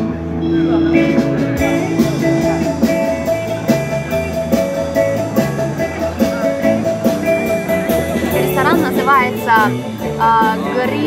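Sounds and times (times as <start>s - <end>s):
held pitched notes: 0.0s - 11.0s
steady drum beat: 0.7s - 11.0s.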